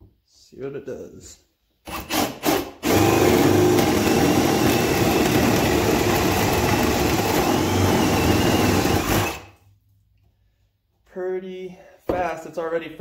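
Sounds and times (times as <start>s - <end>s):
drill boring through wood: 1.9s - 9.6s.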